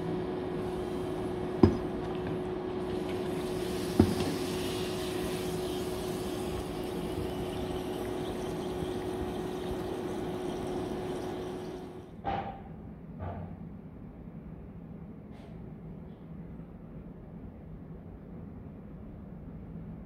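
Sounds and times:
food sizzling in hot oil: 0.6 - 12.1.

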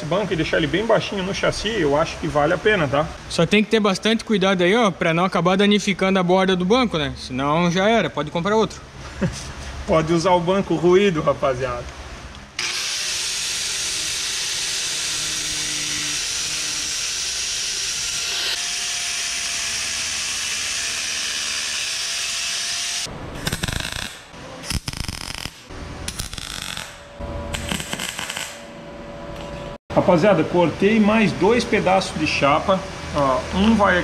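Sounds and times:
angle grinder cutting metal: 12.6 - 28.6
electric welding bursts: 12.6 - 28.7.

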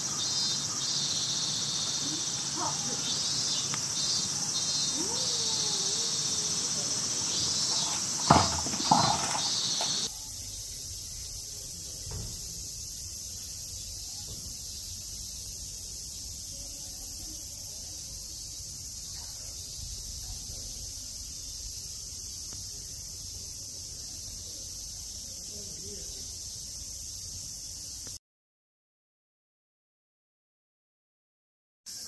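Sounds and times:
high-pitched insect drone: 0.0 - 28.1.

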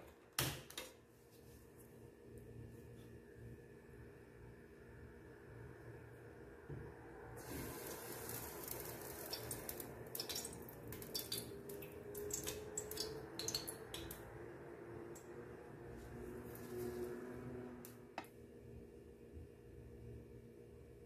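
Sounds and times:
oil pouring and splashing: 7.4 - 14.1.

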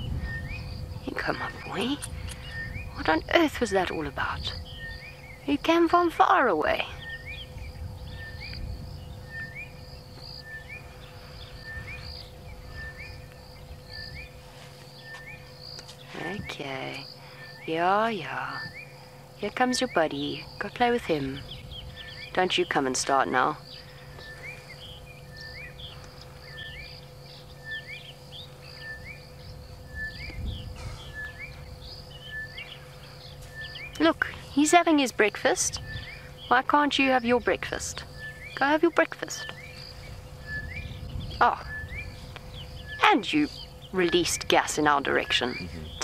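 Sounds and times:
bird calling: 0.0 - 46.0
faint hum: 0.0 - 46.0
high insect buzz: 0.0 - 46.0
low steady rumble: 0.0 - 46.0
bird two-part call: 23.6 - 46.0.

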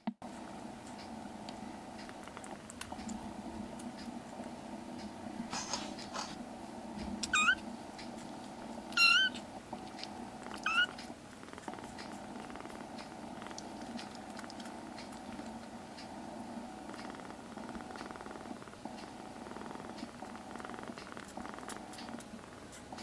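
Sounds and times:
faint low hum: 0.0 - 23.0
kitten mewing: 7.2 - 7.6, 8.9 - 9.4, 10.5 - 11.0.

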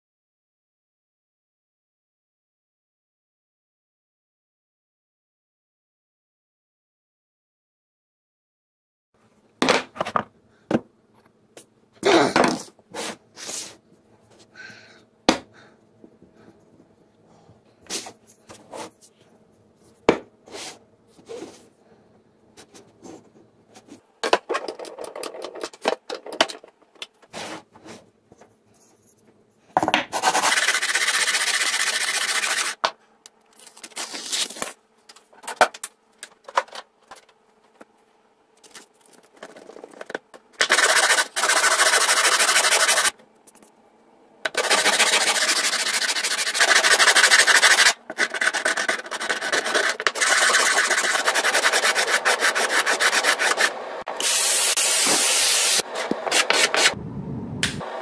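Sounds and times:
sandpaper rasping scrape: 30.2 - 32.8, 40.6 - 43.1, 44.5 - 57.0.

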